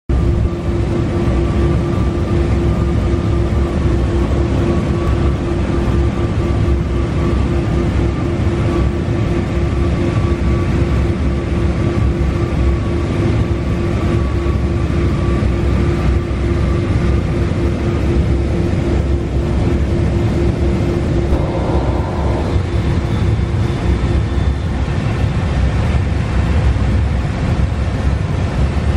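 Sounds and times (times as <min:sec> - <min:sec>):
robotic machine hum: 0:20.0 - 0:24.7
faint wavering high tone: 0:21.2 - 0:24.6.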